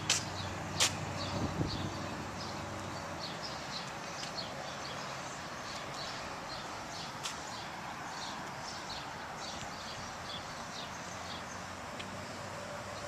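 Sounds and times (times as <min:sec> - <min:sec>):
footsteps on concrete: 0:00.0 - 0:01.2, 0:02.7 - 0:10.0
outdoor background hiss: 0:00.0 - 0:13.0.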